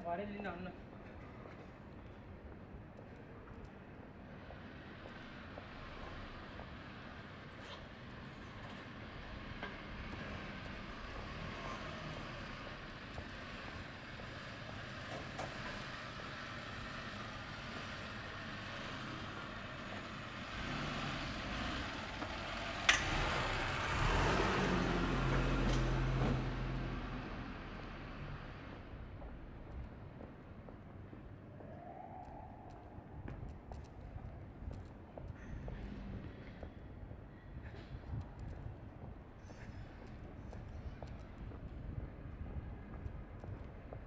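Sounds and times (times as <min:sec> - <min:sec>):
road noise hum: 0:00.9 - 0:44.0
vehicle passing close by: 0:20.4 - 0:28.7.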